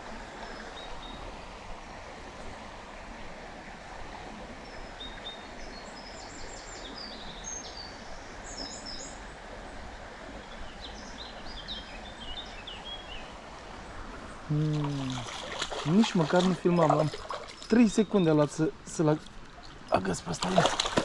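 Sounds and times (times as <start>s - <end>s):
small stream rushing: 0.0s - 21.0s
songbird chirping: 14.2s - 21.0s.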